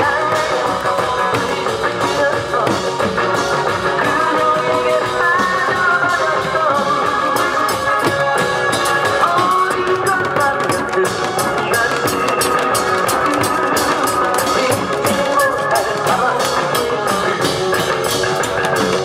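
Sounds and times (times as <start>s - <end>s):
held melody line: 0.0s - 19.0s
music with fast drum beat: 0.0s - 19.0s.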